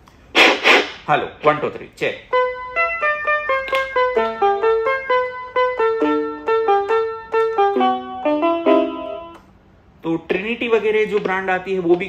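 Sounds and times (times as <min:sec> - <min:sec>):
toy electronic keyboard melody: 0:02.3 - 0:09.4.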